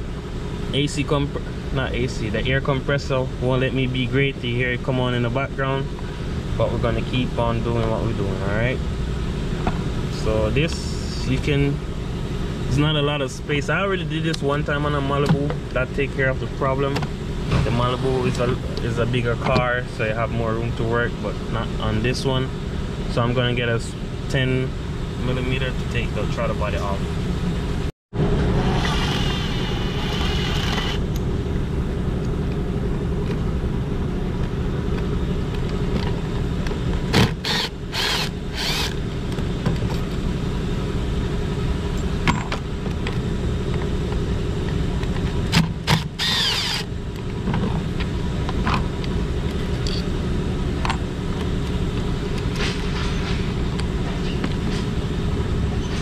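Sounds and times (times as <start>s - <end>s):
air compressor running: 28.2s - 31.2s, 37.1s - 39.2s, 45.5s - 47.0s.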